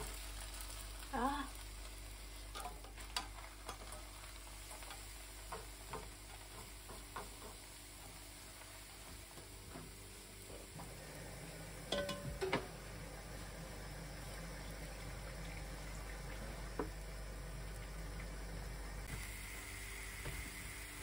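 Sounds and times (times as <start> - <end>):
pancake sizzling in a pan: 0.0 - 21.0
spatula tapping and scraping pan: 4.9 - 8.2, 11.9 - 12.7.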